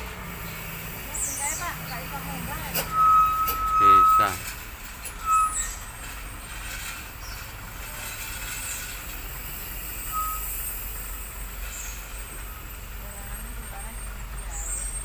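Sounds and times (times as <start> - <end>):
diesel trucks passing: 0.0 - 15.0
tyre and road noise: 0.0 - 15.0
short high beep: 2.7 - 4.5, 5.2 - 5.7, 10.1 - 10.5.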